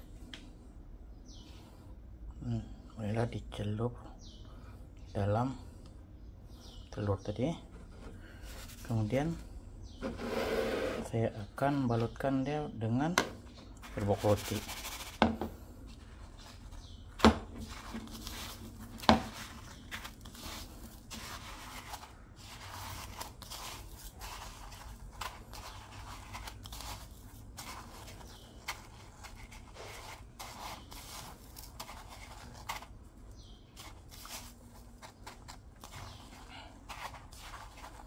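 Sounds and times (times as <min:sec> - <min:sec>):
breadcrumbs rustling and scraping: 0:07.6 - 0:11.2, 0:13.5 - 0:38.0.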